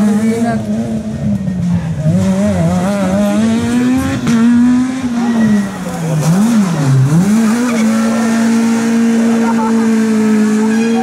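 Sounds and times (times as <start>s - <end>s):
rally car engine revving: 0.0s - 11.0s.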